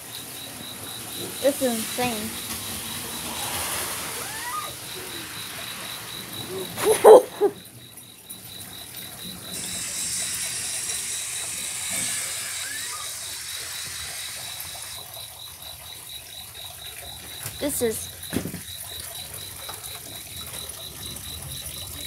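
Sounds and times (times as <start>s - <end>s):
faint hiss: 0.0s - 7.1s, 9.3s - 15.0s
crickets chirping: 0.0s - 22.0s.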